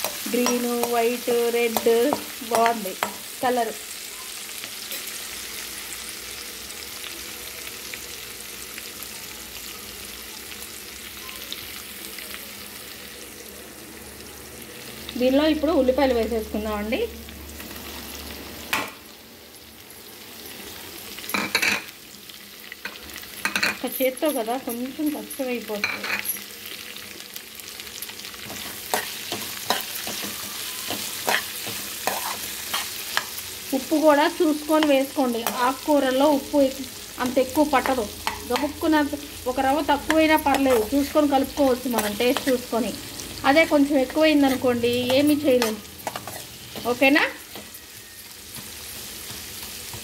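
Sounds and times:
spices sizzling in hot oil: 0.0 - 50.0
spatula scraping and knocking pan: 28.4 - 33.4.

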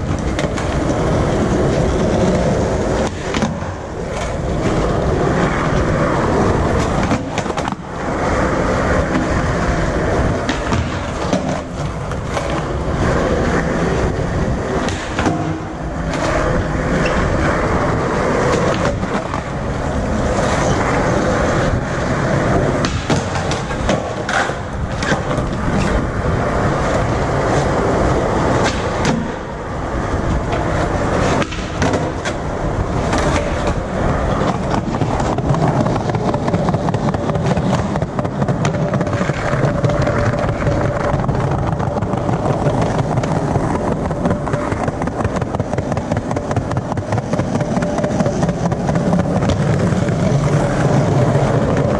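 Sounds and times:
skateboard wheels rolling on concrete: 0.0 - 51.9
skateboard wooden clacks: 0.0 - 51.9.

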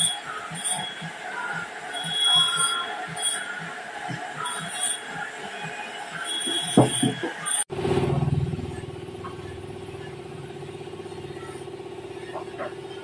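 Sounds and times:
high squeal: 0.0 - 7.7
motor hum with rapid pulse: 0.0 - 13.0.

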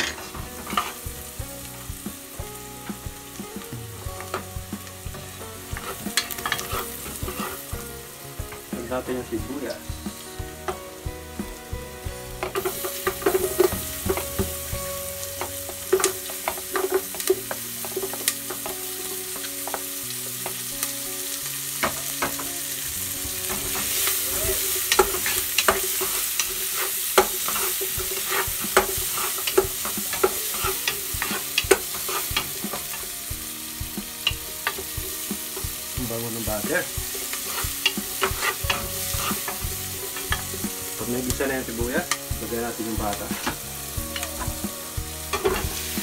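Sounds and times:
onion sizzling in butter: 0.0 - 46.0
wooden spatula scraping a pot: 5.7 - 7.8, 23.4 - 33.0, 37.1 - 41.2.

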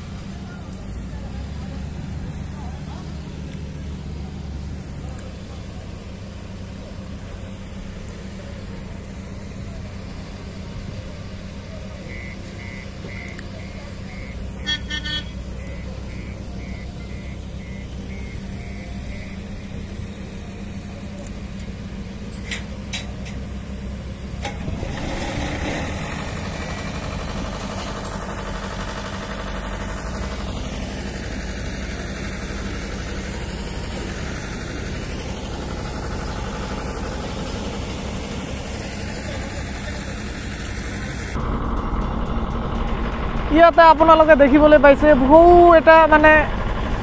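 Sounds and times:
heavy diesel engines humming: 0.0 - 47.0
faint short beeps: 12.0 - 19.8.

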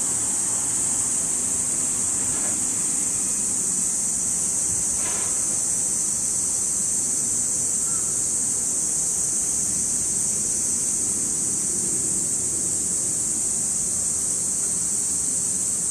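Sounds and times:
electric train rumbling: 0.0 - 7.5
cicadas chorus: 0.0 - 15.9.

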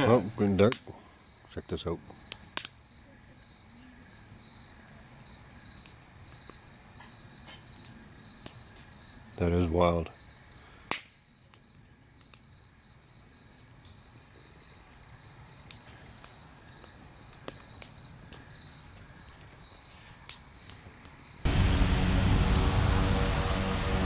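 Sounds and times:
crickets chirping: 0.0 - 24.0
loud steady sound: 21.5 - 24.0.

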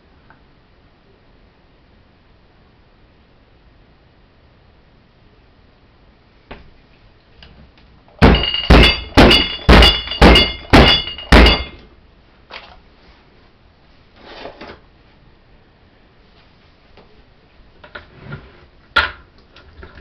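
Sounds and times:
bottles ringing: 8.2 - 11.8.

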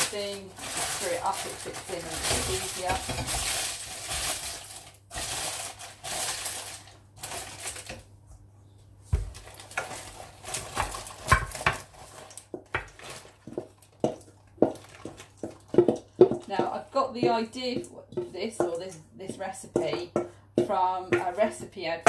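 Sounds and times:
parchment paper crumpling: 0.0 - 8.0, 9.2 - 13.8.

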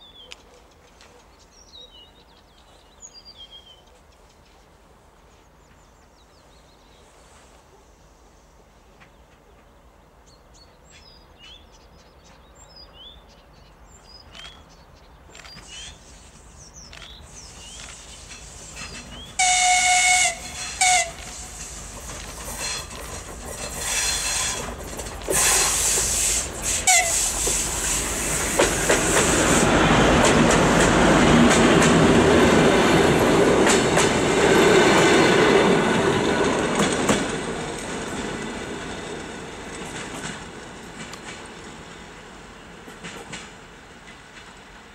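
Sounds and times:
diesel locomotive engine: 15.3 - 44.9
train wheels rolling: 15.3 - 44.9
train horn blasts: 19.4 - 21.6, 26.8 - 27.6.

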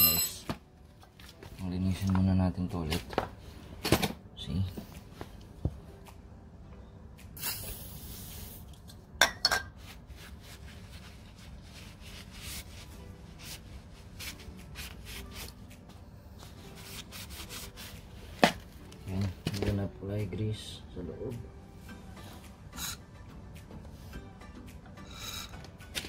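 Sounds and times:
aerosol spray hiss: 7.4 - 8.7
tissue paper rubbing metal: 9.8 - 15.8, 16.5 - 18.5.

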